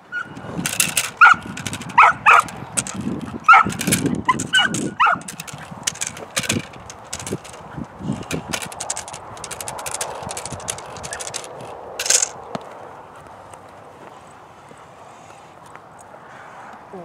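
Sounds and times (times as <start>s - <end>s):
puppy yipping and barking: 0.1s - 0.4s, 1.2s - 2.5s, 3.4s - 5.3s
sharp clicks and scrapes: 0.4s - 12.4s.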